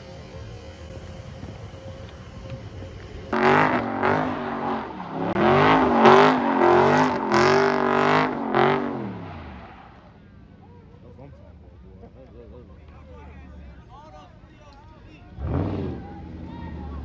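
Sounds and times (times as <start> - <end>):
tires squealing: 3.2 - 10.3, 15.2 - 17.0
car engine revving hard: 3.3 - 9.9, 15.3 - 17.0.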